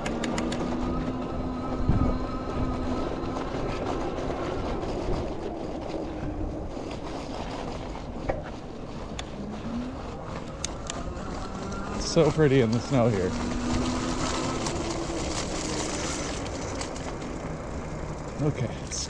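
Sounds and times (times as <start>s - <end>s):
sharp clicks: 0.0s - 0.8s
electric bike motor whine: 0.1s - 19.0s
tyres rolling on snow: 0.1s - 19.0s.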